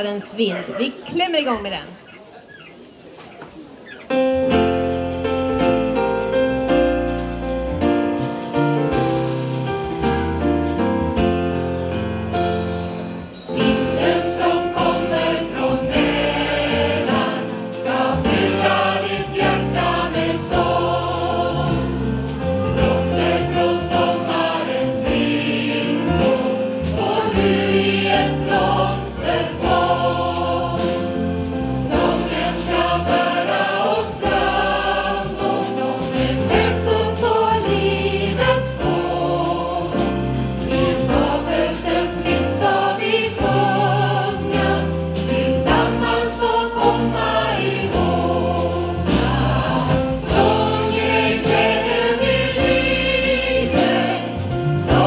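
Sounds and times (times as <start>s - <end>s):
choir singing: 13.3s - 55.0s.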